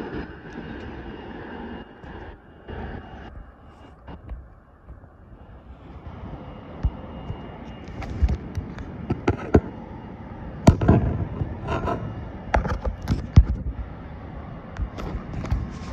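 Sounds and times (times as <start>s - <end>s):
low rumble: 10.6s - 13.8s.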